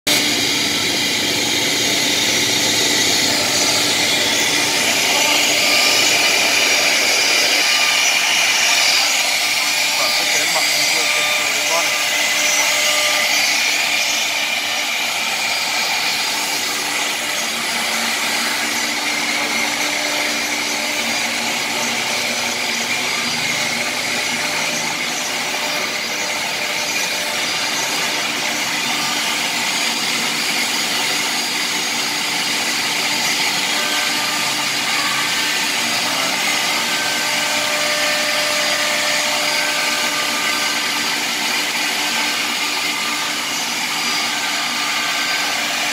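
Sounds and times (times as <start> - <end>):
dust extraction hissing: 0.1 - 45.9
wood router whining: 0.1 - 45.9.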